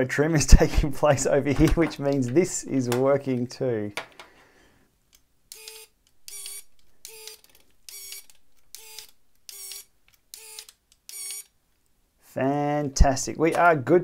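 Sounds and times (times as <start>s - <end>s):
derailleur motor whirring: 5.5s - 11.5s.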